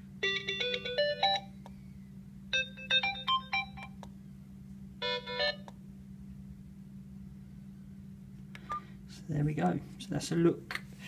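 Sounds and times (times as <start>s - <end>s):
electronic ringtone melodies: 0.3s - 1.5s, 2.6s - 4.0s.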